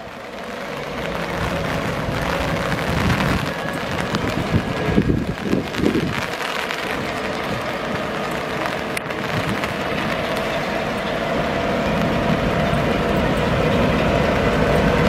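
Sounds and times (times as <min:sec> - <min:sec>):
diesel locomotive engine rumble: 0:00.0 - 0:15.0.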